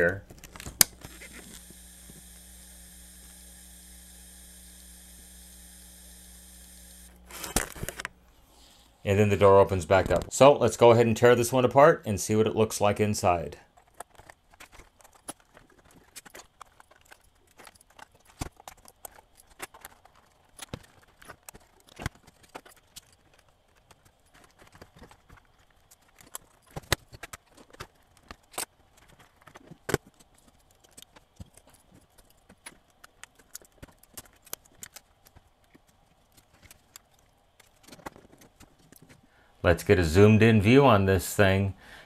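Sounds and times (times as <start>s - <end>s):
plastic and metal parts clicking: 0.2s - 2.3s, 13.7s - 39.3s.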